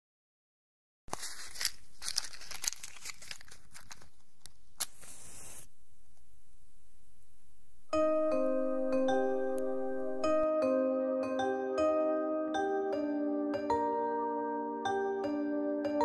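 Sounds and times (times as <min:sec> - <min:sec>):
match crack: 0:01.1 - 0:05.7
burning match hiss: 0:04.8 - 0:05.7
match scraping on striker: 0:04.8 - 0:05.7.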